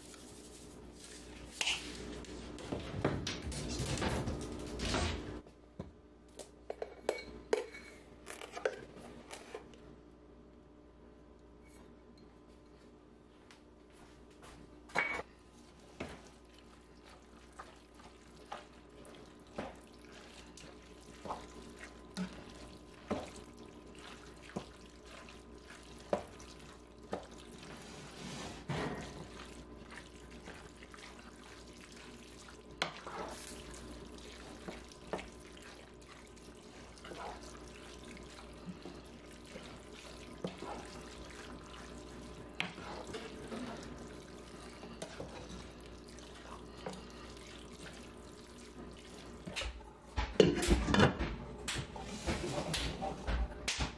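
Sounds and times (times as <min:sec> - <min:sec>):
wet squelching of stirred sauce: 0:15.6 - 0:49.8.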